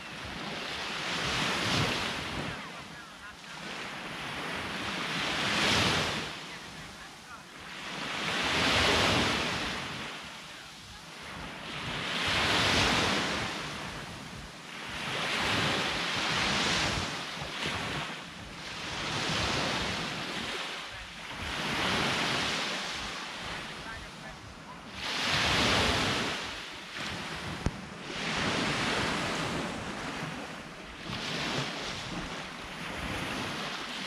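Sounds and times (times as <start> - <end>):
sea waves breaking on shore: 0.0 - 34.0
wind buffeting microphone: 8.2 - 34.0.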